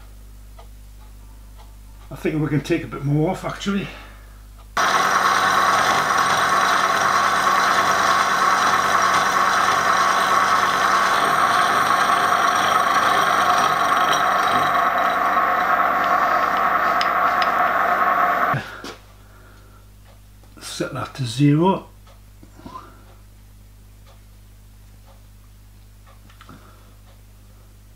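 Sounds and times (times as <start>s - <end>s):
milling machine cutting metal: 4.8s - 18.6s.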